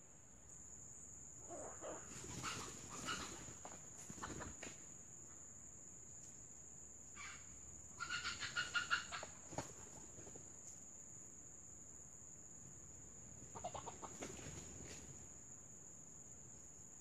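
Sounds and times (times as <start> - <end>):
rooster clucking: 1.6 - 4.4, 8.0 - 9.4, 13.5 - 14.2.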